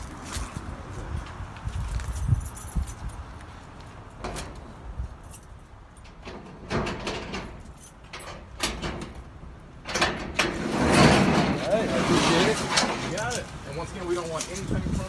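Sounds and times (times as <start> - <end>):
things clunking and rattling: 4.0 - 15.0.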